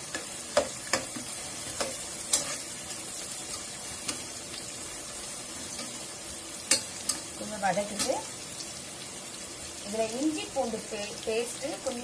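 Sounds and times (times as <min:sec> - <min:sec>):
onions sizzling in oil: 0:00.0 - 0:12.0
metal spoon clinking on pan: 0:00.1 - 0:02.7, 0:06.6 - 0:08.3.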